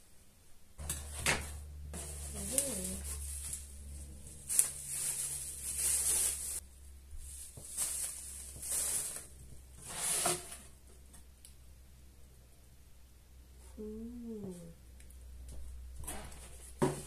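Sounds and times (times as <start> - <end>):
plastic packaging crinkling: 2.0 - 6.6, 7.2 - 9.4.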